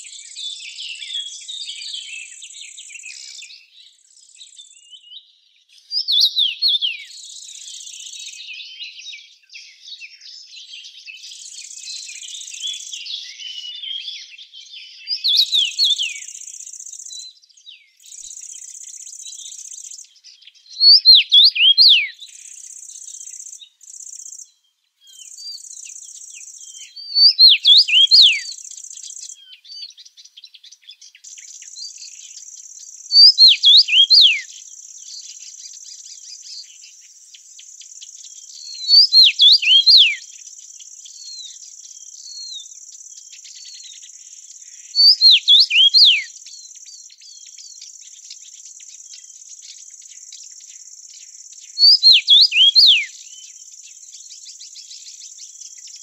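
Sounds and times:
birds twittering: 0.0s - 56.0s
songbird whistling phrase: 5.8s - 30.0s, 31.4s - 36.9s, 38.4s - 40.3s, 41.0s - 47.9s, 51.7s - 55.1s.

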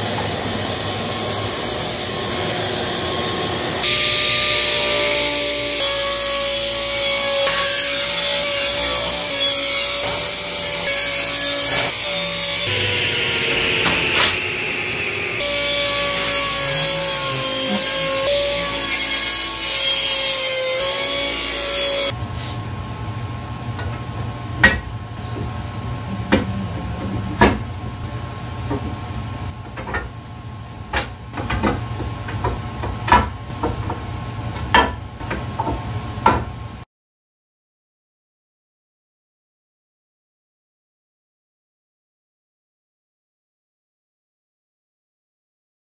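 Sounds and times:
table saw ripping boards: 3.8s - 12.7s, 13.4s - 14.5s, 15.4s - 22.1s
low hum: 24.9s - 29.4s
wooden strips and clamps knocking: 30.9s - 34.0s.

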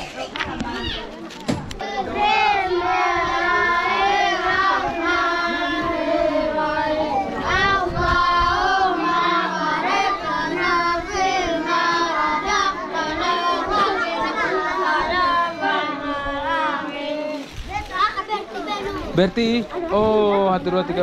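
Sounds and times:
children singing together: 1.8s - 17.4s.

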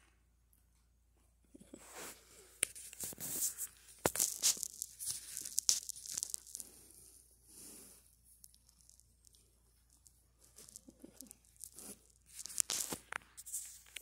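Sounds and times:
cat fur rubbing on microphone: 1.7s - 6.0s, 10.8s - 14.0s.

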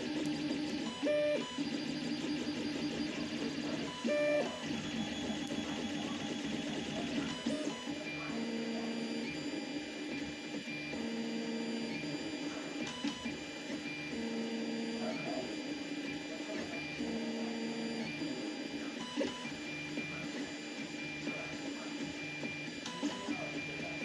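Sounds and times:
cooling fans whirring: 0.0s - 24.0s.

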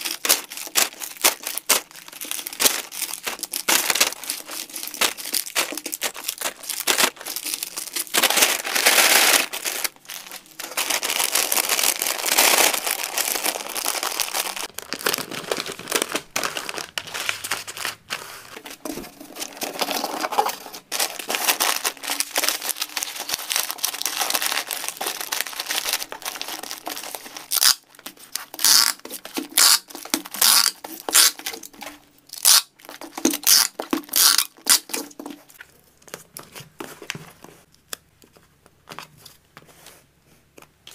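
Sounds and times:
plastic bags and paper crinkling: 0.0s - 37.7s
packing tape pulled and torn: 19.2s - 35.4s.

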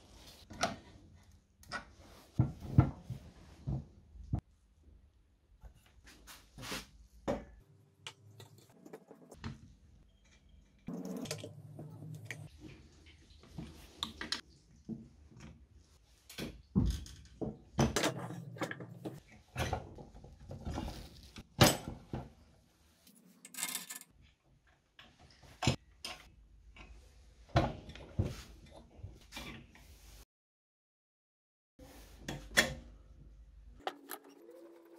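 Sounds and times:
metal parts clinking and knocking: 23.4s - 24.1s.

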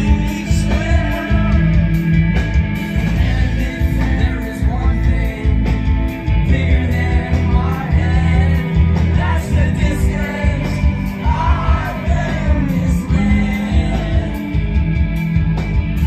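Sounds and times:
bass guitar: 0.0s - 16.0s
drums: 0.0s - 16.0s
electric guitars: 0.0s - 16.0s
person singing: 6.5s - 14.8s.

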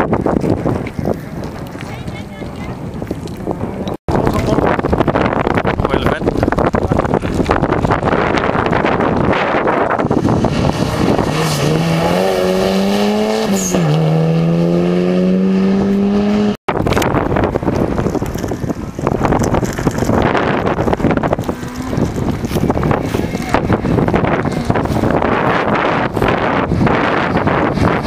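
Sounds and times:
wind buffeting microphone: 0.0s - 28.0s
rally car engine accelerating: 8.1s - 17.1s.

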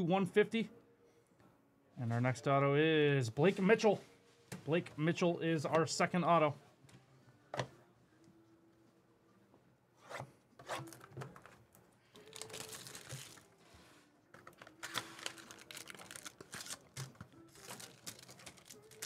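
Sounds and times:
plastic wrap tearing and crinkling: 12.2s - 13.6s, 14.5s - 19.0s.

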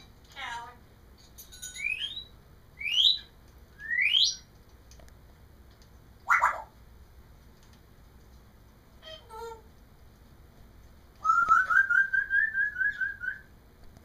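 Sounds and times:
parrot rising whistles: 1.9s - 4.4s, 11.2s - 13.5s
parrot harsh call: 6.2s - 6.7s.

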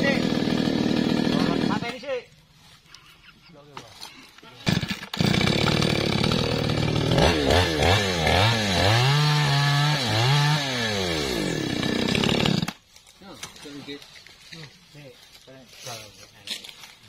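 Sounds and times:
chainsaw cutting wood: 0.0s - 2.1s, 4.6s - 12.8s.

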